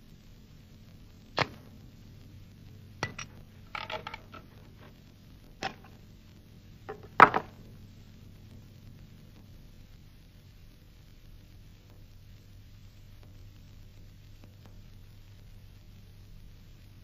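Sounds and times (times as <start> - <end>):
gun set down clack: 3.0 - 4.9, 5.6 - 6.0, 6.9 - 7.6.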